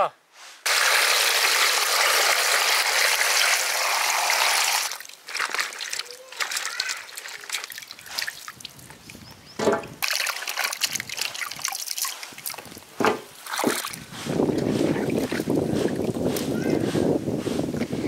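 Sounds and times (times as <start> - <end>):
water rushing: 0.7 - 8.9
water splashing and trickling: 0.7 - 16.8.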